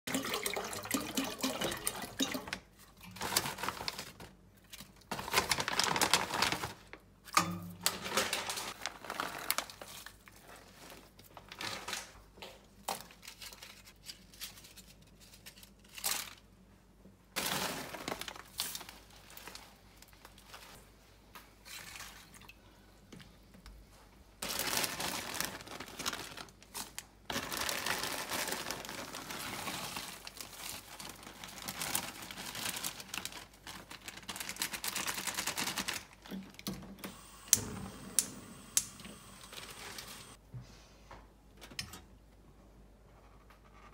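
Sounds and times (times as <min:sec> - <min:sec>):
water pouring into a pot: 0:00.1 - 0:02.6
plastic bag crinkling: 0:01.8 - 0:07.2, 0:07.9 - 0:12.2, 0:17.4 - 0:20.8, 0:24.4 - 0:36.6
dried ingredients rustling: 0:24.4 - 0:36.2.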